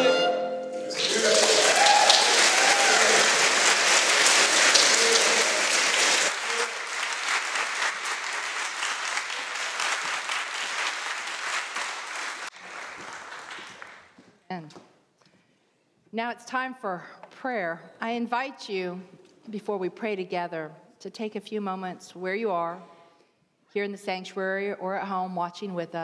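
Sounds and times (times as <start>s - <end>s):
congregation clapping: 0.9s - 14.2s.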